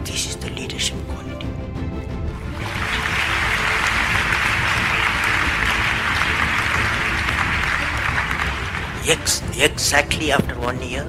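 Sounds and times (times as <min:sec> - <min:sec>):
audience applauding: 0:02.4 - 0:10.1.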